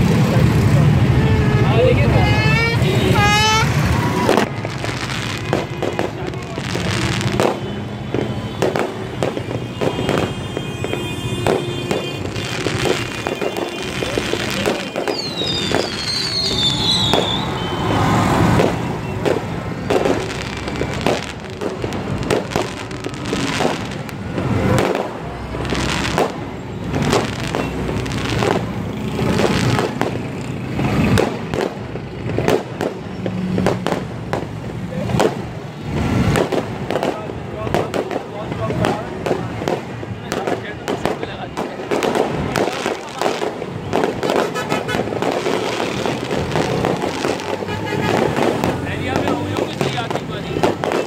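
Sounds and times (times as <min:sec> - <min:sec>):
fireworks bangs and crackles: 0:00.0 - 0:51.0
firework whistle: 0:01.2 - 0:06.0, 0:06.8 - 0:24.1.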